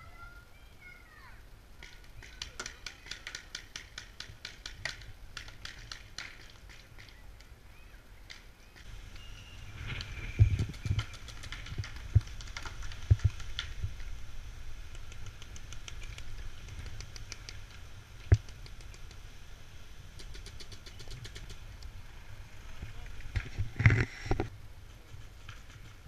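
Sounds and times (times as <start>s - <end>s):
paintball markers firing: 1.8s - 7.2s.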